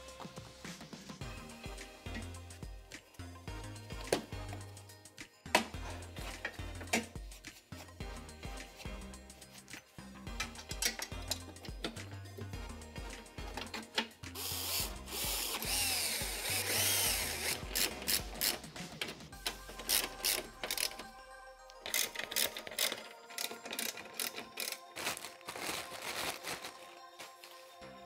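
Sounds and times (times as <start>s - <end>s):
background music: 0.0s - 28.0s
hand ratchet clicking: 13.6s - 21.1s, 21.8s - 24.9s.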